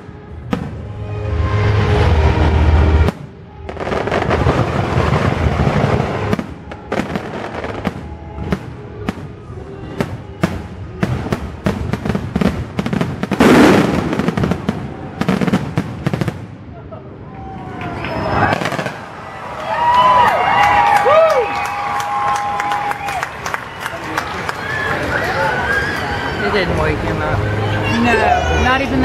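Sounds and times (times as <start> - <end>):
fireworks bangs and crackle: 0.0 - 1.2, 2.0 - 16.8, 17.9 - 19.9
music soundtrack: 0.0 - 15.2, 26.5 - 29.0.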